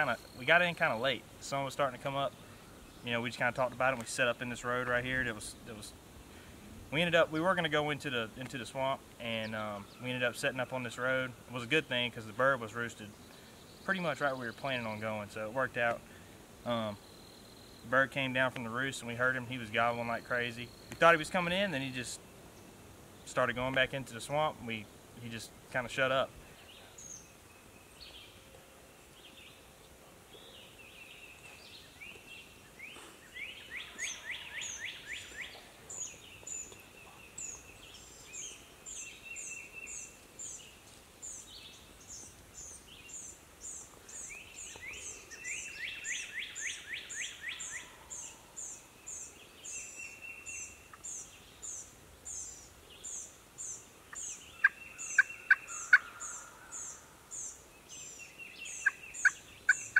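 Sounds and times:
turkey gobbling: 54.1 - 56.6.

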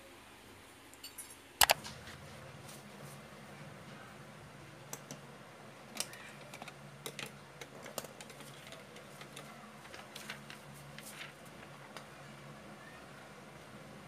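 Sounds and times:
paper taps and rustles: 7.7 - 12.1.

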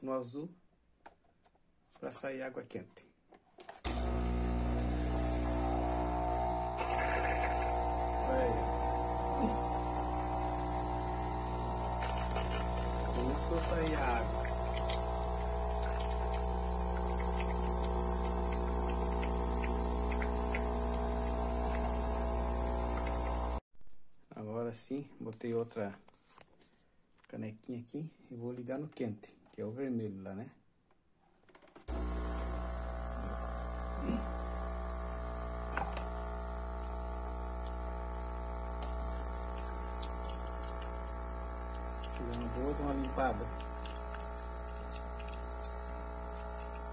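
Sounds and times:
coffee machine pump humming: 3.9 - 23.6, 31.9 - 46.9
water stream ticking: 11.7 - 22.0, 39.4 - 46.9.

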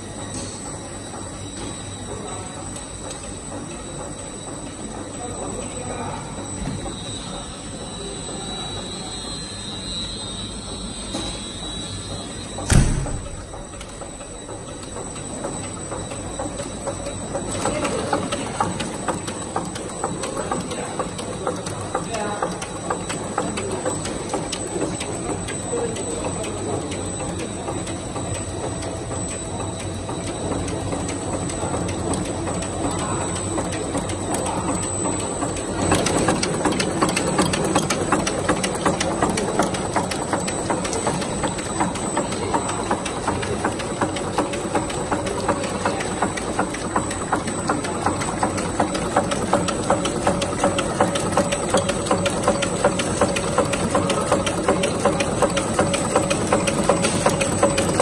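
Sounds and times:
steady machine hum: 0.0 - 58.0
machine mechanism ticking: 12.1 - 58.0.

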